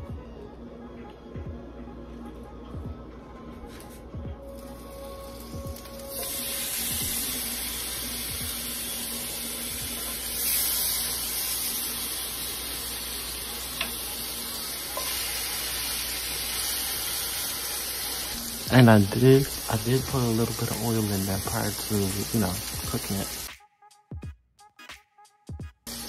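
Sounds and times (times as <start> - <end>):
meat sizzling in hot oil: 4.5 - 23.5.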